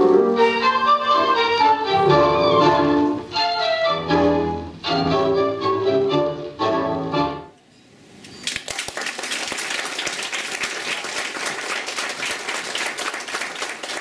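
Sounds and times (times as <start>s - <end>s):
audience clapping: 8.4s - 14.0s.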